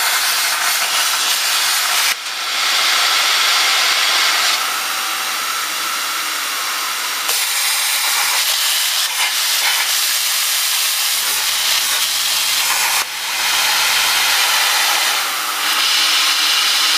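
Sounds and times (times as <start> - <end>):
plasma torch hissing: 0.0 - 2.4, 7.3 - 16.9.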